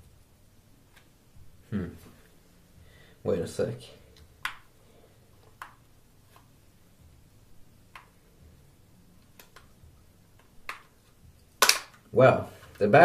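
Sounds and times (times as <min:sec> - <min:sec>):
plastic cover clicks: 0:11.6 - 0:12.1.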